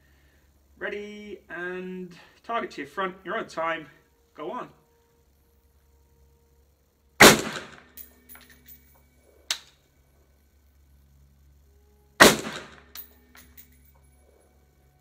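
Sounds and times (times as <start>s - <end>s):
rifle shots with echo: 7.2s - 7.9s, 12.2s - 13.0s
light metallic clinks: 7.9s - 9.9s, 12.8s - 14.9s
small sharp crack: 9.5s - 9.8s.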